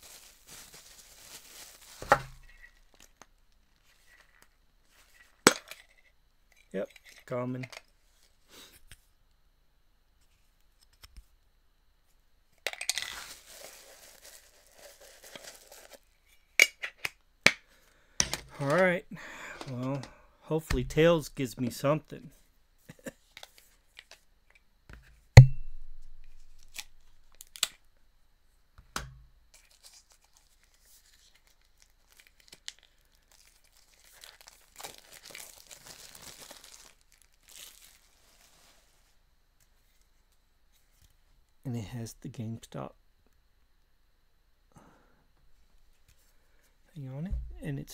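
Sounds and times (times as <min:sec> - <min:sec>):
plastic packaging crinkling and tearing: 0:00.0 - 0:04.1, 0:12.9 - 0:16.0, 0:26.4 - 0:27.8, 0:29.6 - 0:38.9.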